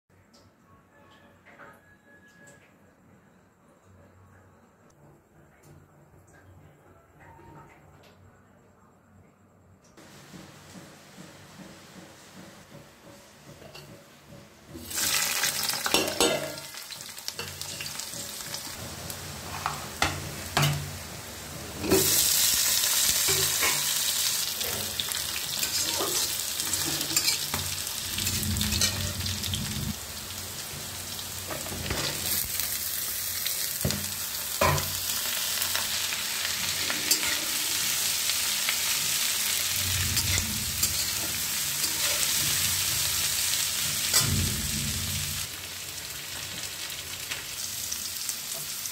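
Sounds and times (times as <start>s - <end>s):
vegetables sizzling in oil: 14.7s - 48.9s
metal spatula scraping pan: 21.7s - 29.9s, 36.6s - 44.8s.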